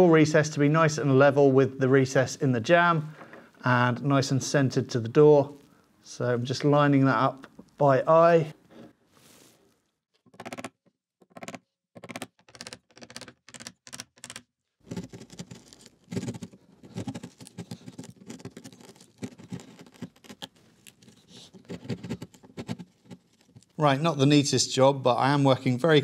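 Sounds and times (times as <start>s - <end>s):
wood chisel scraping: 14.9s - 23.8s.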